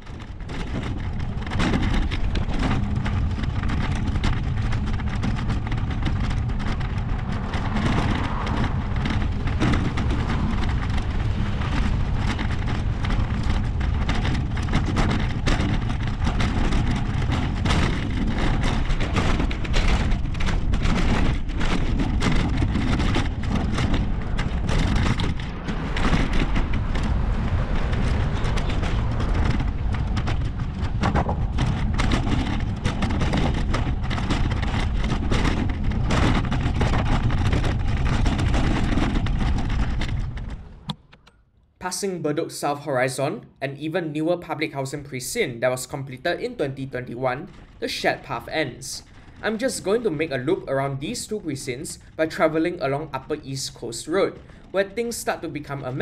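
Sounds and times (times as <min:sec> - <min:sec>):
wind rushing over microphone: 0:00.0 - 0:41.2
short irregular knocks: 0:00.0 - 0:41.4
road traffic: 0:04.8 - 0:20.8, 0:21.4 - 0:34.3.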